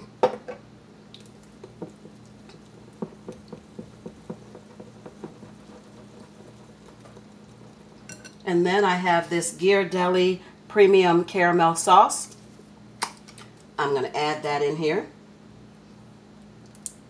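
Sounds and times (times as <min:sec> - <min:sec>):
whisk squishing batter: 0:01.3 - 0:08.2
whisk tapping glass bowl: 0:01.6 - 0:08.4.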